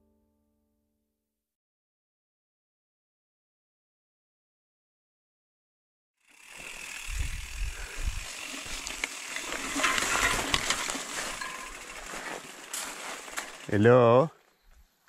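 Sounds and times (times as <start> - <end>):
bike rattling and clicking: 6.2 - 14.0
tyres on dirt and gravel: 8.1 - 14.6
leaves brushing past: 8.2 - 13.8.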